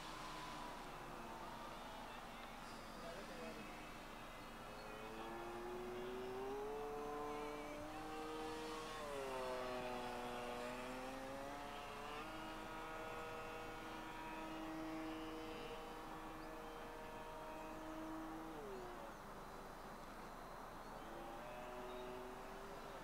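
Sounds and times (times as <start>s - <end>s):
model plane motor whining: 4.7s - 23.0s.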